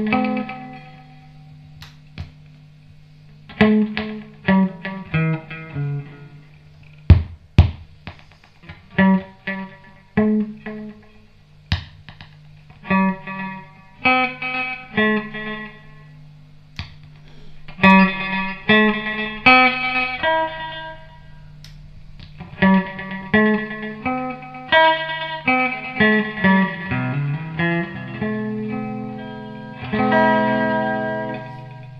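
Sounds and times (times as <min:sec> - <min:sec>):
electric guitar with echo: 0:00.0 - 0:02.6, 0:03.2 - 0:07.4, 0:08.0 - 0:31.9
low amplifier hum: 0:00.0 - 0:31.9.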